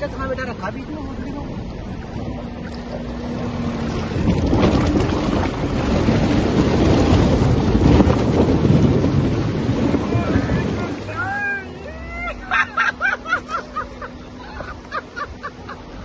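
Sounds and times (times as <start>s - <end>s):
wind buffeting microphone: 0.0s - 11.4s
low engine hum: 0.0s - 16.0s
tyres splashing through water: 0.0s - 16.0s.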